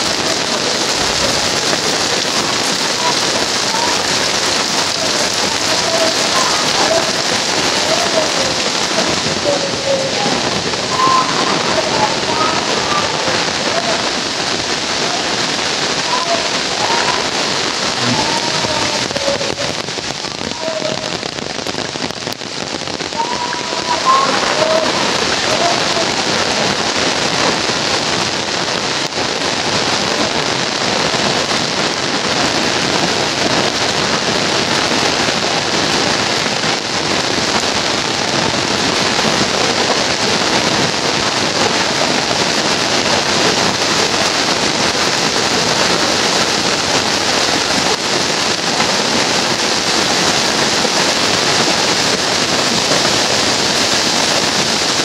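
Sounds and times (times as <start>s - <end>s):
heavy rain falling: 0.0s - 55.0s.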